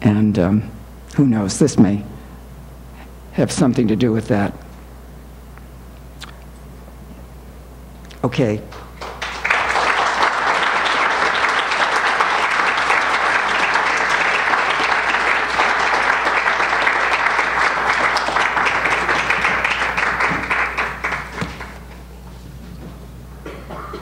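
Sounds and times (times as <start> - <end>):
audience applauding: 8.7 - 22.0.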